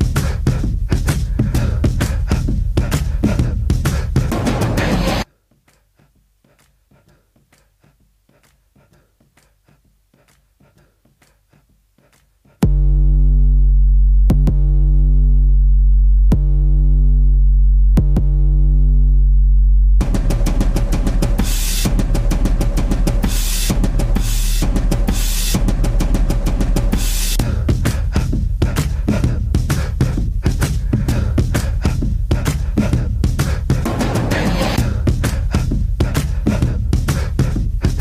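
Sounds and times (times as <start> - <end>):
dance music over sound system: 3.0 - 5.3, 20.0 - 31.8, 32.4 - 38.0
deep held bass note: 12.6 - 20.5
heavy drum hits: 20.0 - 28.5.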